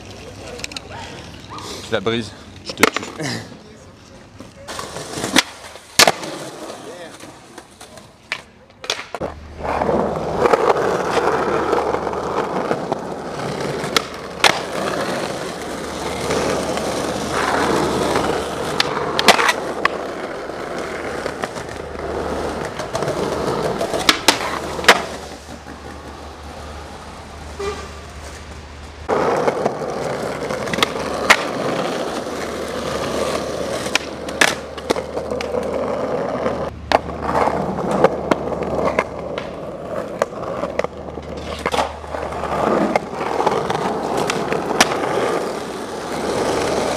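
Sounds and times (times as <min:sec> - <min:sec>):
skateboard clacking on ground: 0:00.0 - 0:01.7, 0:02.5 - 0:26.8, 0:27.6 - 0:46.9
skateboard wheels rolling on pavement: 0:00.0 - 0:46.9.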